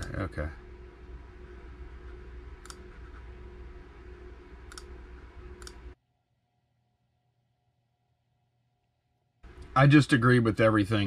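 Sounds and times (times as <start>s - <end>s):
low room hum: 0.0s - 11.0s
computer mouse clicks: 2.6s - 3.2s, 4.7s - 5.8s.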